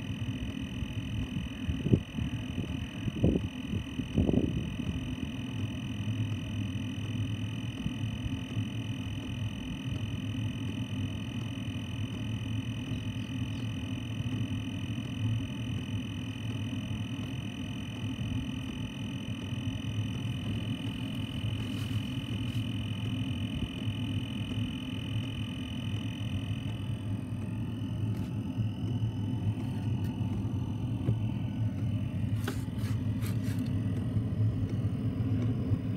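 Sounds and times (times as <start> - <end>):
heater buzzing hum: 0.0 - 35.9
high whine: 0.0 - 35.9.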